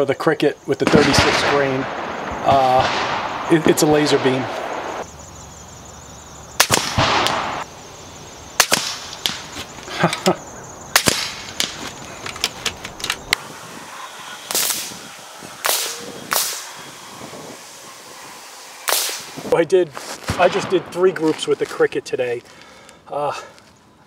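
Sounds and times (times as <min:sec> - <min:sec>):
air rifle shots: 0:00.8 - 0:05.1, 0:06.6 - 0:07.7, 0:08.6 - 0:09.6, 0:10.9 - 0:11.8, 0:13.2 - 0:19.6.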